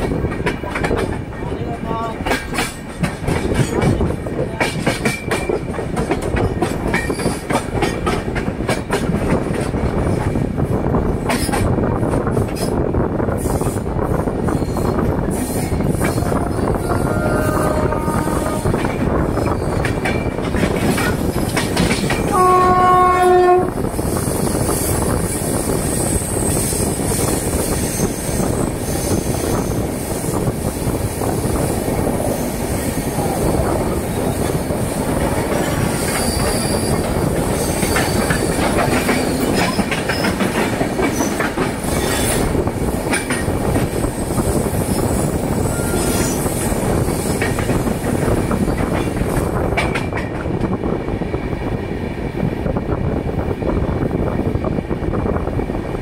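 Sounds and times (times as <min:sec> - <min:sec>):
train rumble and wheel clatter: 0:00.0 - 0:56.0
locomotive horn: 0:16.2 - 0:18.8, 0:22.3 - 0:23.8.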